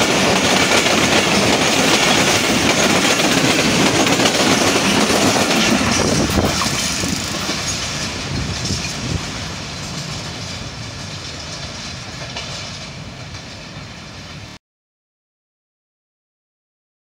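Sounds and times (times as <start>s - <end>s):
train coaches rolling on track: 0.0s - 14.6s.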